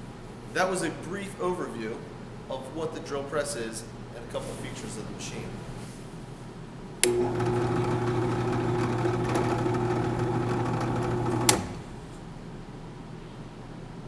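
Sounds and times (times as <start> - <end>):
drill press motor running: 7.0 - 12.2.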